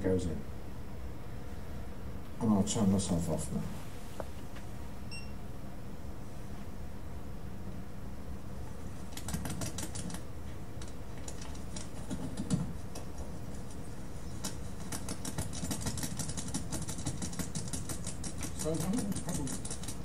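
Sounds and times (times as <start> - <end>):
steady hum: 0.0 - 20.0
rapid clicking and clothing rustling: 9.0 - 10.2, 10.8 - 20.0.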